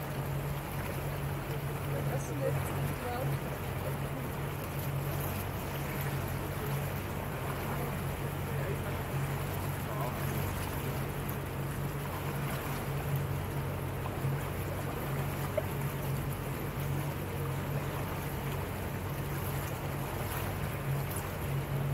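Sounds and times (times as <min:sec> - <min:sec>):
motorboat engine droning: 0:00.0 - 0:21.9
water rushing past hull: 0:00.0 - 0:21.9.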